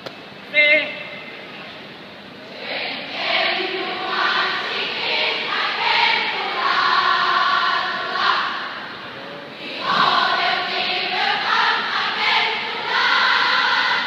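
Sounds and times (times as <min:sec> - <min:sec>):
crowd singing in unison: 0:02.4 - 0:08.9, 0:09.6 - 0:14.0.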